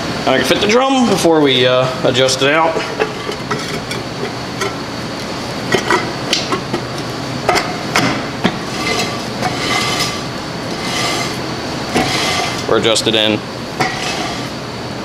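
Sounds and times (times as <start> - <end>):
brake drum scraping: 8.5 - 13.0, 13.8 - 14.6.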